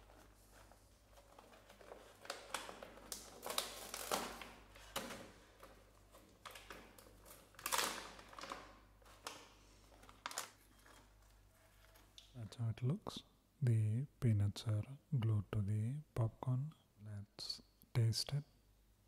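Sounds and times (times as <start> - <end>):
snack bag crinkling: 0.0 - 12.3.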